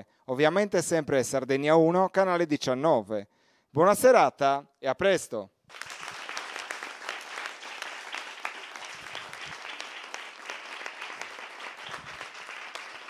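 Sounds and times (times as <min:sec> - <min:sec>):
people clapping: 0:05.7 - 0:13.0.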